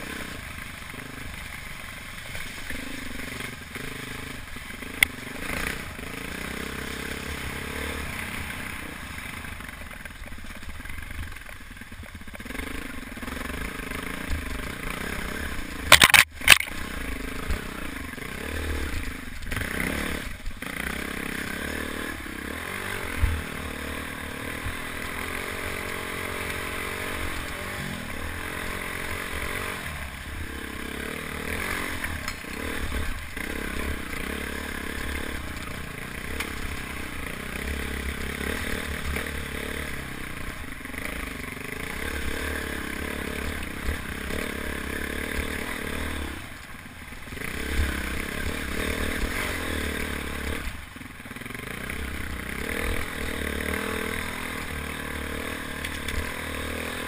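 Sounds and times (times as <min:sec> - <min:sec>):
motorcycle engine revving: 0:00.0 - 0:57.0
motorcycle knocking over rocks: 0:15.8 - 0:16.9.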